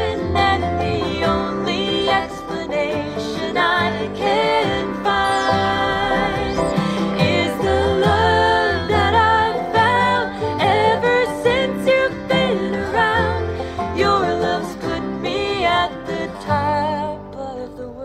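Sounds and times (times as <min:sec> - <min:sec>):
person singing: 0:00.0 - 0:18.0
plucked guitar strings: 0:00.0 - 0:18.0.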